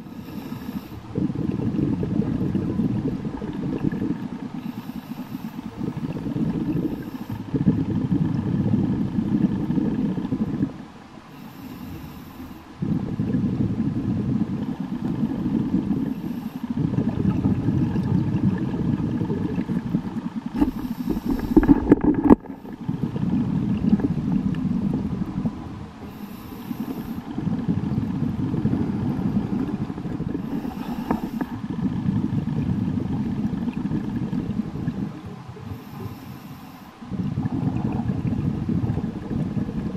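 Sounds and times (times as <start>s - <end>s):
regulator inhale hiss: 0.0s - 1.2s, 4.5s - 7.6s, 11.3s - 13.0s, 14.8s - 16.8s, 20.5s - 22.9s, 26.0s - 27.4s, 28.0s - 31.6s, 35.6s - 37.3s
exhaled bubbles rumbling: 0.0s - 39.9s.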